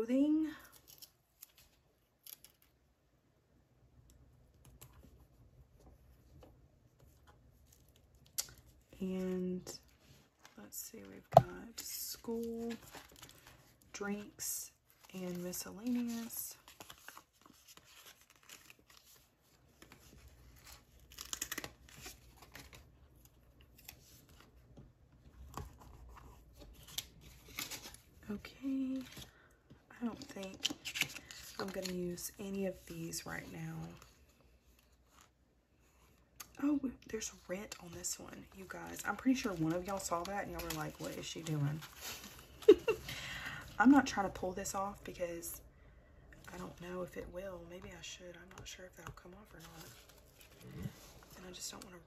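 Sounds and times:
paper handling noises: 6.2 - 24.8, 25.4 - 29.4, 30.0 - 35.4, 37.0 - 43.1.

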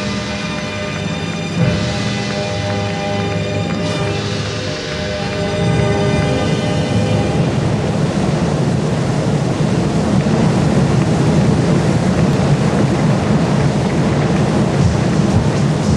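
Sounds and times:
stadium crowd cheering: 0.0 - 8.8.

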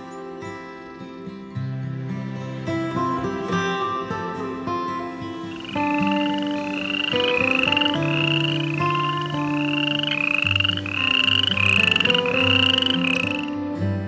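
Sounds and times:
soft background music: 0.0 - 14.0
pulsed rising animal call: 5.5 - 13.6.

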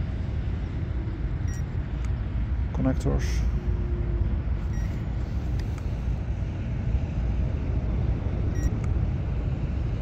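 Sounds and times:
low outdoor rumble: 0.0 - 10.0
thermometer electronic beep: 1.4 - 1.7, 4.7 - 5.0, 8.5 - 8.8.

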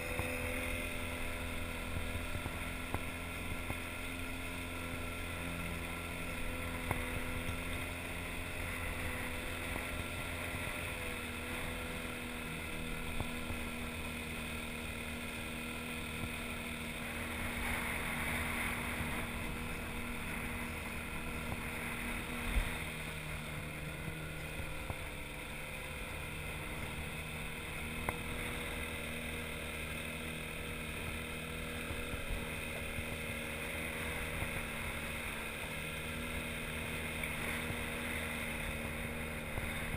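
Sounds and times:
outboard motor running: 0.0 - 39.9.

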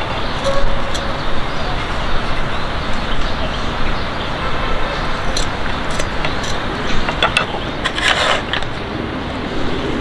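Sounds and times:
city traffic hum: 0.0 - 10.0
light clicks and knocks: 5.3 - 8.7.

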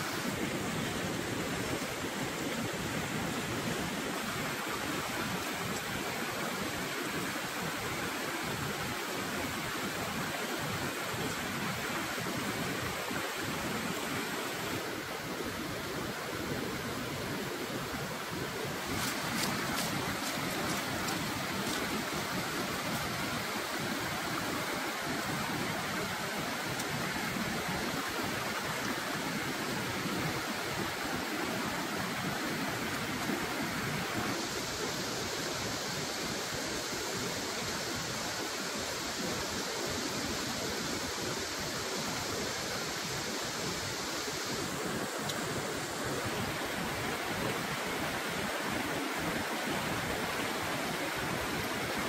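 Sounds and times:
stream rushing over rocks: 0.0 - 52.0
lettuce leaf crunching: 19.0 - 21.9.

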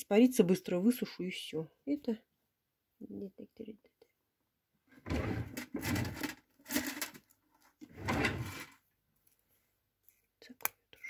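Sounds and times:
objects scraping on a table: 7.8 - 8.8.

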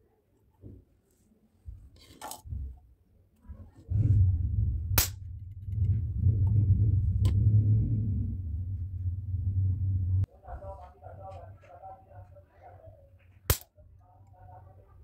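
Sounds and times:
steady low hum: 3.7 - 15.0
spot welder sharp cracks: 13.5 - 13.7.

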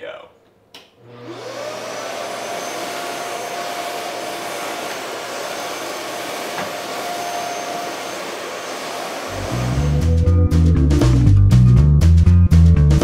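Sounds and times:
dust extractor running: 1.0 - 10.1.

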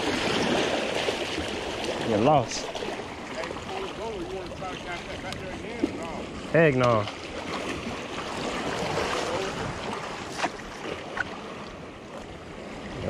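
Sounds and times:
sea water splashing against rocks: 0.0 - 13.0
wind on microphone: 7.4 - 13.0.

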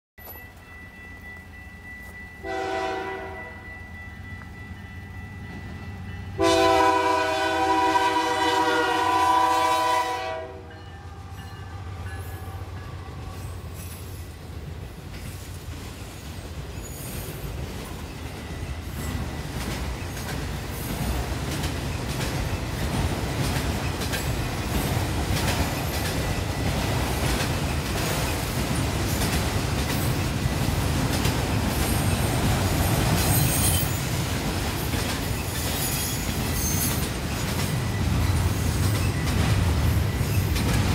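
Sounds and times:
train rumbling past: 0.2 - 40.9
locomotive horn blast: 2.4 - 3.6, 6.4 - 10.8
wheels clacking over rail joints: 15.0 - 40.9.

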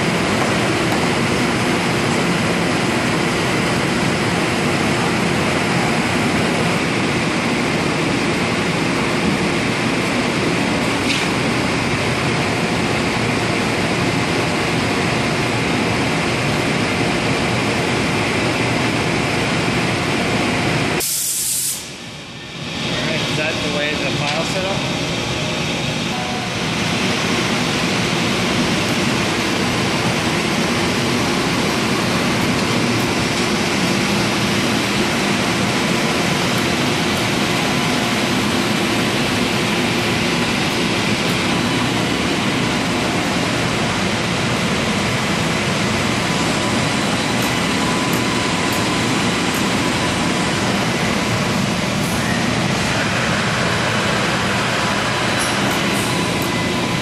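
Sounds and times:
printer mechanical running noise: 22.8 - 57.0.

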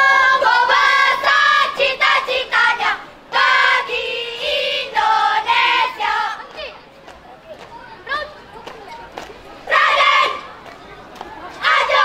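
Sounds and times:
children chanting in unison: 0.0 - 6.8, 9.7 - 10.5, 11.6 - 12.0.

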